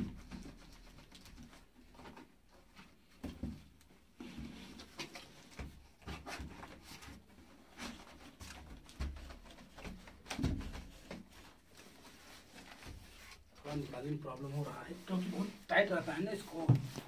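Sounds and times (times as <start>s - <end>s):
cardboard rubbing and scraping: 4.2s - 17.0s.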